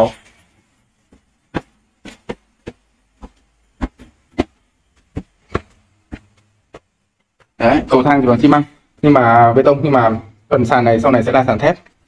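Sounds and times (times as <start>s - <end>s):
footsteps on concrete stairs: 1.0s - 7.6s.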